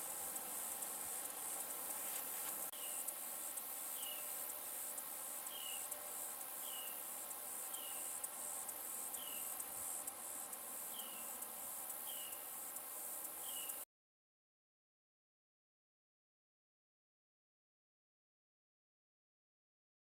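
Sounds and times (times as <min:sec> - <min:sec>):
insects trilling: 0:00.0 - 0:13.8.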